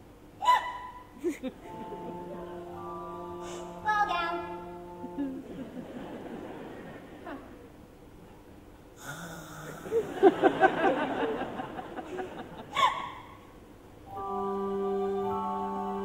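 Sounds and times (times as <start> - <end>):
orchestra sustained chord: 1.6 - 6.8, 14.1 - 16.0.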